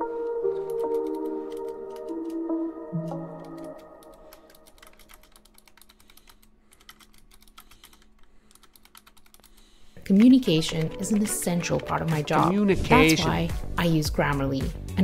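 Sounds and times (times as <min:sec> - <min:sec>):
song playing: 0:00.0 - 0:04.5, 0:10.8 - 0:13.9
computer keyboard typing: 0:00.2 - 0:12.4.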